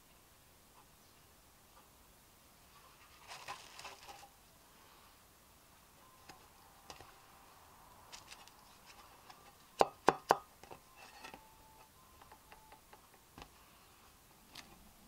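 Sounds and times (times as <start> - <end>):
metallic ring: 10.9 - 11.9.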